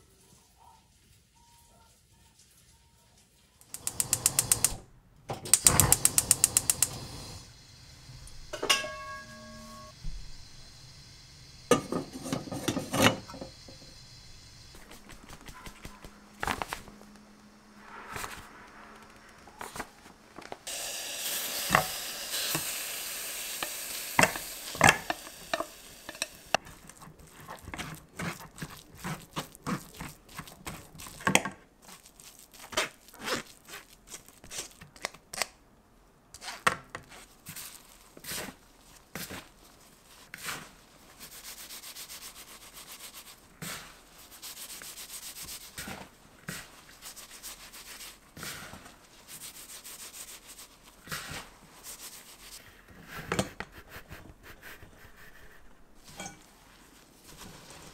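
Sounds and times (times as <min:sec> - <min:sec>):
spatula scraping mesh sieve: 0:08.6 - 0:09.9, 0:11.7 - 0:13.8, 0:23.5 - 0:34.8, 0:39.2 - 0:57.9
gloved hands rubbing: 0:14.8 - 0:17.0, 0:26.2 - 0:34.9, 0:46.5 - 0:56.0.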